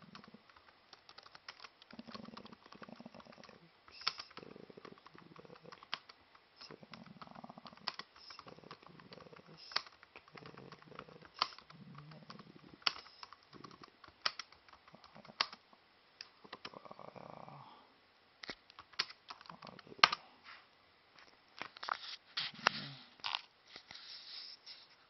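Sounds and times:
laptop keyboard typing: 0.0 - 15.6, 18.4 - 20.2.

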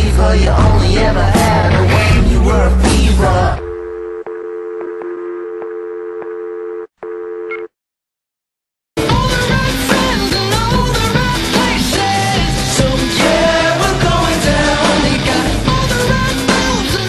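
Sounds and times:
rock song: 0.0 - 3.8, 9.0 - 17.0
telephone dial tone: 3.7 - 7.7.

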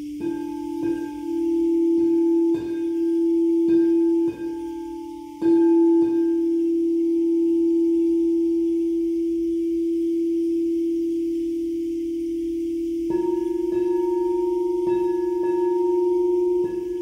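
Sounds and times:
singing bowl ringing: 0.0 - 17.0.

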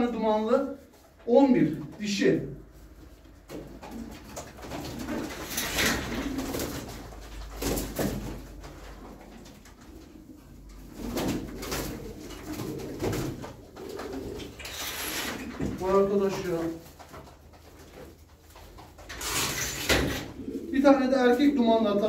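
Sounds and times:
pigeons cooing: 3.6 - 16.4, 19.2 - 22.0.

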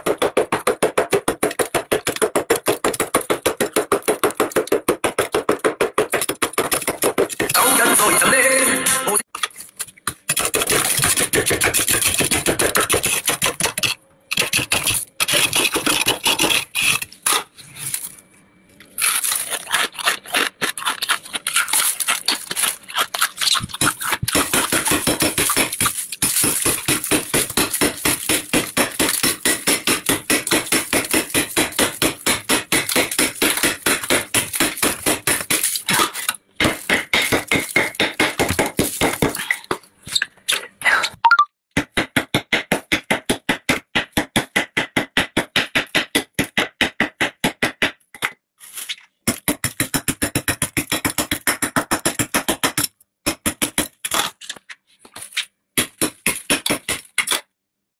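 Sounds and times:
metal spoon scraping frost: 9.4 - 18.2, 18.8 - 28.3.

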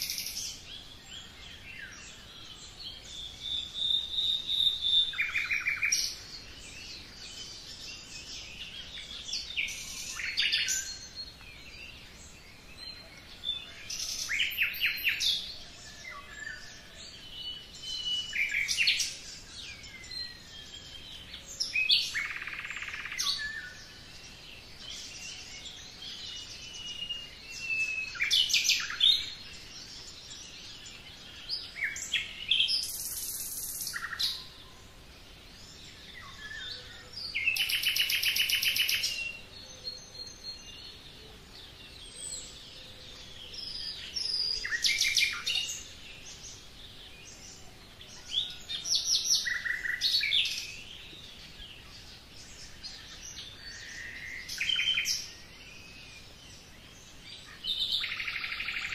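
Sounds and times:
songbirds singing: 0.0 - 58.9.

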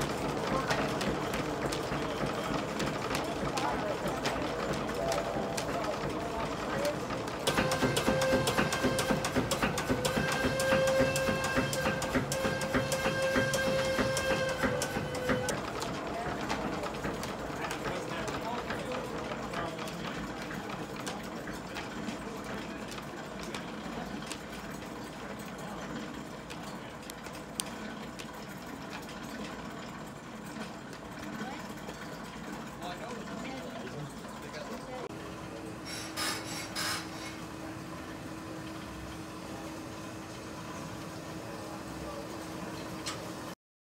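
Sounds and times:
sawmill machinery clattering: 0.0 - 43.6
steam engine running: 0.0 - 43.6
steam hissing bursts: 35.8 - 37.5.

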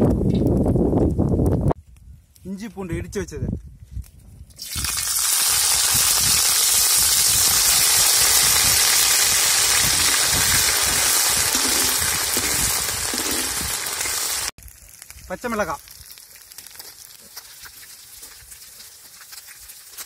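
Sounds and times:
paste sizzling in hot oil: 4.6 - 20.0.

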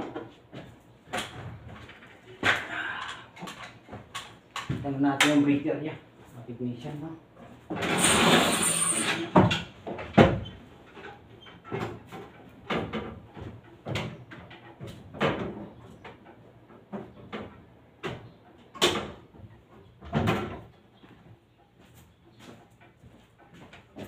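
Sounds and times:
knocks and clunks of handling: 0.0 - 5.5, 9.2 - 21.4.

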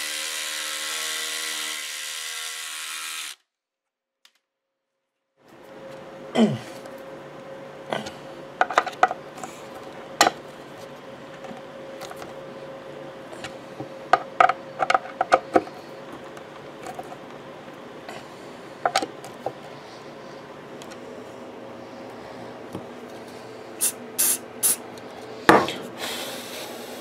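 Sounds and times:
steady hum: 5.4 - 27.0.

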